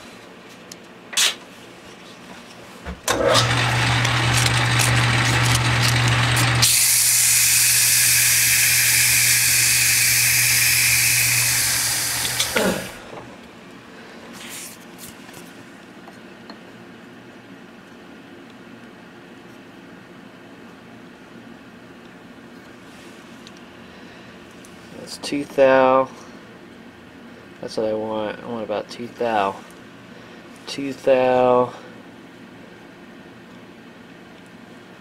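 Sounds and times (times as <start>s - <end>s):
lathe motor humming: 3.1s - 13.4s.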